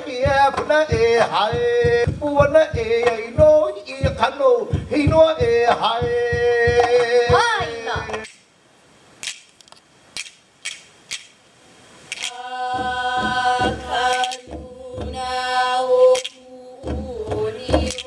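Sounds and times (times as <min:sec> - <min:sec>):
low percussion beats: 0:00.0 - 0:08.4, 0:12.1 - 0:18.0
sharp percussive strikes: 0:12.1 - 0:15.4, 0:16.1 - 0:18.0
chanted vocals: 0:12.2 - 0:18.0.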